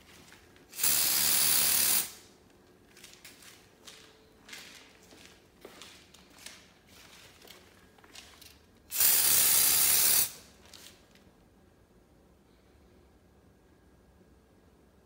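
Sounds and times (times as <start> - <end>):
aerosol spray hiss: 0.7 - 2.2, 8.9 - 10.4.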